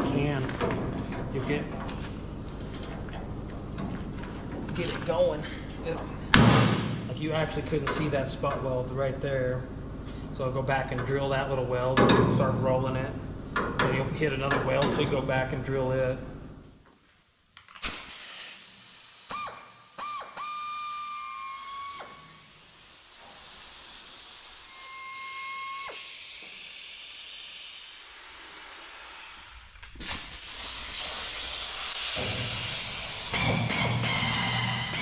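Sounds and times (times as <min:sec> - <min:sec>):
hissing exhaust air: 0:17.8 - 0:35.0
air drill whining: 0:19.3 - 0:29.7, 0:30.4 - 0:35.0.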